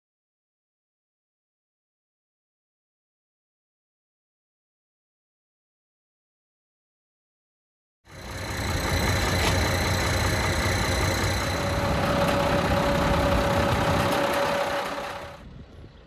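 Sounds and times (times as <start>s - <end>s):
tractor diesel engine rumbling: 8.1s - 15.9s
faint engine sound: 8.1s - 16.0s.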